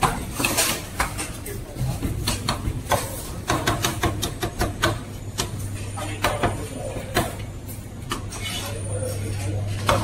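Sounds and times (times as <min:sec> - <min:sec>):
cleaver chopping meat on wood: 0:02.4 - 0:05.6.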